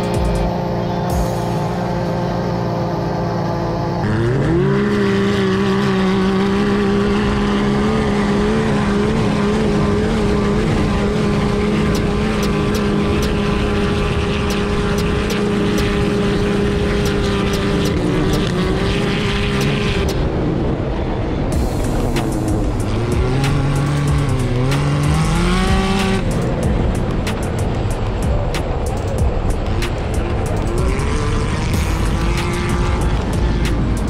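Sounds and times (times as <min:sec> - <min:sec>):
utility vehicle engine revving: 0:00.0 - 0:34.0.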